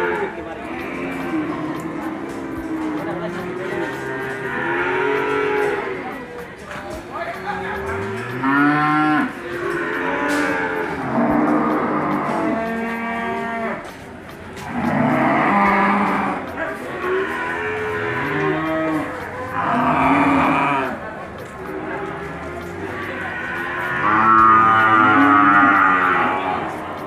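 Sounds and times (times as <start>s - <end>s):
cattle mooing: 0.0s - 6.2s, 7.7s - 14.0s, 14.6s - 27.0s.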